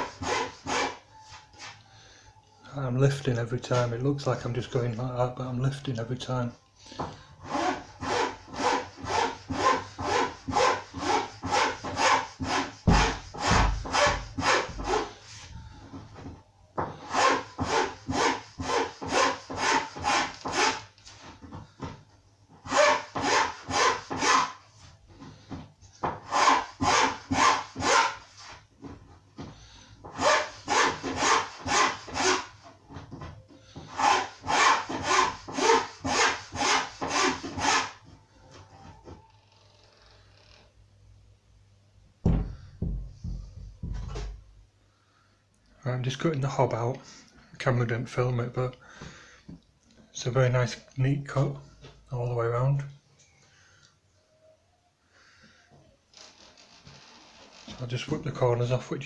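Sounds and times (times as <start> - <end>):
hand file rasping on laminate: 0.0 - 1.0, 7.4 - 15.2, 17.1 - 20.9, 22.7 - 24.6, 26.3 - 28.5, 30.2 - 32.5, 33.8 - 38.0.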